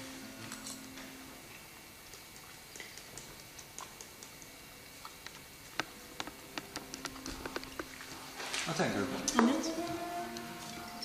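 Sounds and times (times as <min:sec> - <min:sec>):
faint steady hiss: 0:00.0 - 0:11.0
small clicks and ticks: 0:02.1 - 0:07.9.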